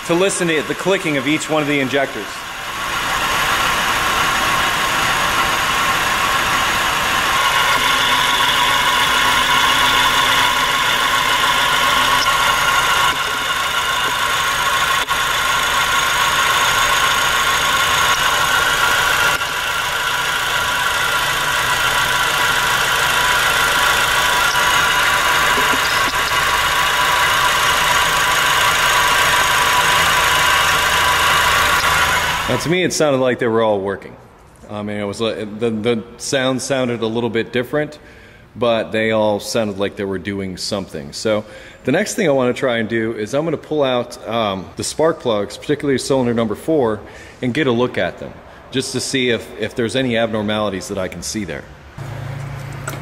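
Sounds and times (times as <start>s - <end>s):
engine idling rough: 0.0s - 32.6s
fuel injectors clicking: 2.6s - 32.6s.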